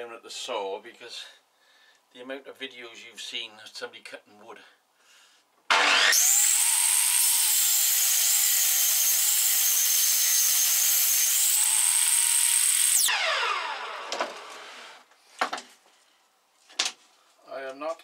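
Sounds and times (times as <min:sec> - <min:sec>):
table saw whining: 0:05.7 - 0:15.0.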